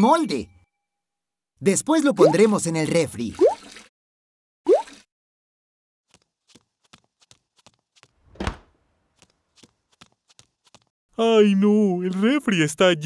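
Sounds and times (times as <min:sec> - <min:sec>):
cartoon door swish: 0:08.2 - 0:08.8.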